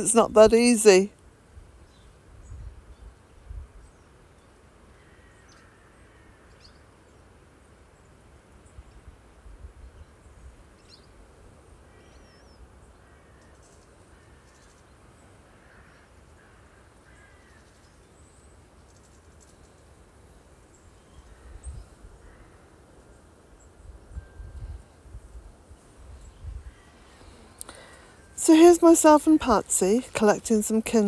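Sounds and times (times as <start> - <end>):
distant birds calling: 26.3 - 31.0.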